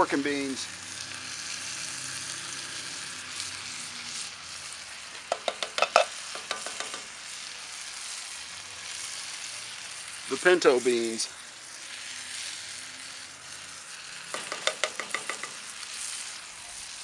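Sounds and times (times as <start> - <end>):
beans pouring into skillet: 0.0 - 17.0
meat and vegetables sizzling: 0.0 - 17.0
tin can clinking on skillet: 5.1 - 7.2, 14.2 - 16.3.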